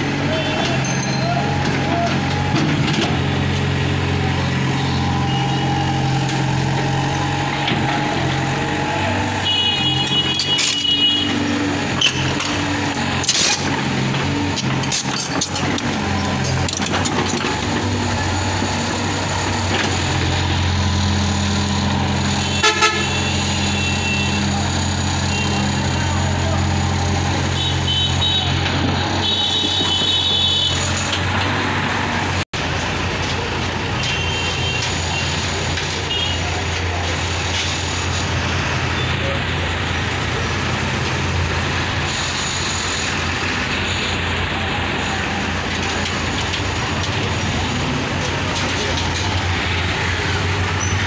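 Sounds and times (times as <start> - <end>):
excavator diesel engine running: 0.0 - 51.0
vehicle horn honking: 9.2 - 11.4, 22.4 - 24.5, 25.3 - 25.7, 27.5 - 31.1, 36.1 - 36.4.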